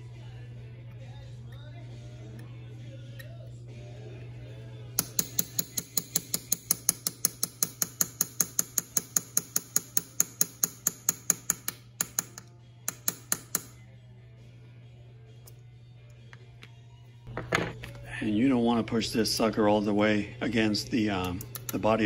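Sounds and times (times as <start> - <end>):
steady low hum: 0.0 - 22.0
hammer tapping metal punch: 5.0 - 13.8.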